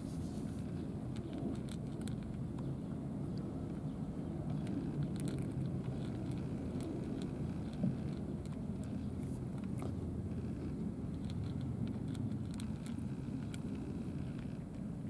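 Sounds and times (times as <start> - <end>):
low background rumble: 0.0 - 15.0
cats chewing food: 0.1 - 14.9.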